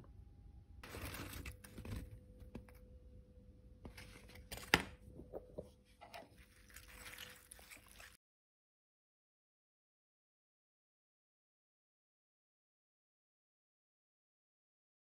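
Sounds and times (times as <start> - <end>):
spoon stirring: 5.2 - 8.2.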